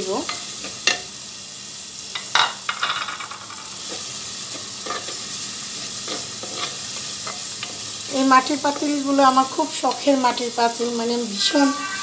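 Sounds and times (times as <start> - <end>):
onions sizzling in hot oil: 0.0 - 12.0
wooden spatula scraping pot: 11.4 - 12.0.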